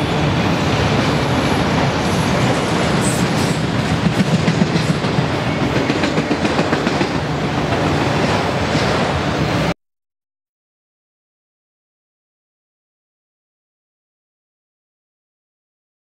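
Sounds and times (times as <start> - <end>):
train wheels clicking: 0.0 - 9.6
train wheels rumbling on rail: 0.0 - 9.8.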